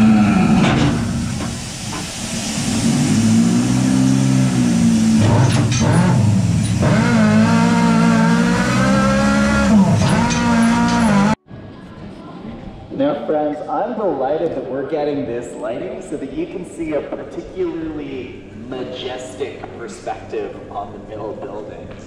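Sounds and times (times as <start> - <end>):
hissing air motors: 0.0 - 11.4.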